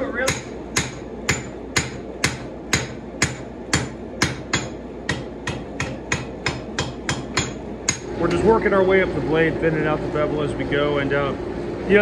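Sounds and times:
hammer striking hot steel on anvil: 0.2 - 8.2.

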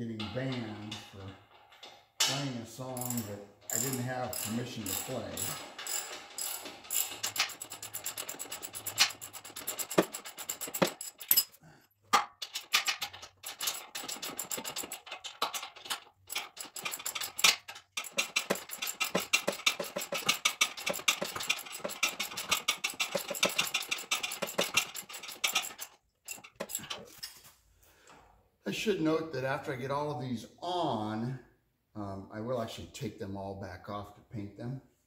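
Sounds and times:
socket ratchet clicking rapidly: 3.0 - 11.5, 12.5 - 26.9.

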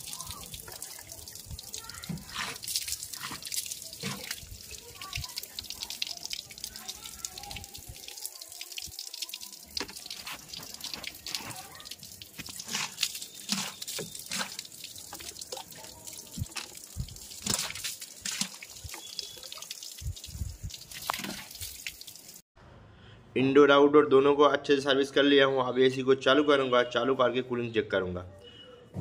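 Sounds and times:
water spray hissing on metal: 9.2 - 15.2.

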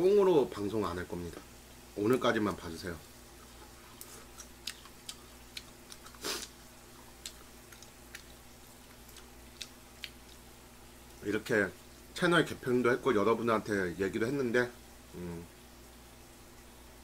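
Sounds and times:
man chewing: 3.3 - 11.2.

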